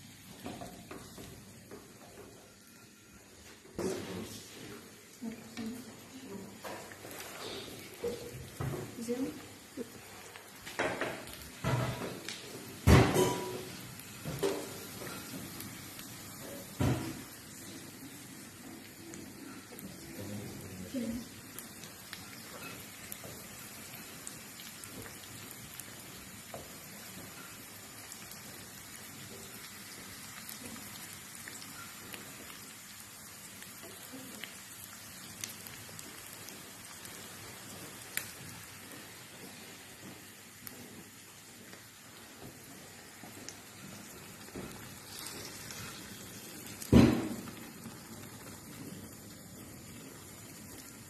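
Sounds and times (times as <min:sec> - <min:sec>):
potatoes frying in a pan: 0:00.0 - 0:51.0
utensils clanking on cookware: 0:12.9 - 0:15.3.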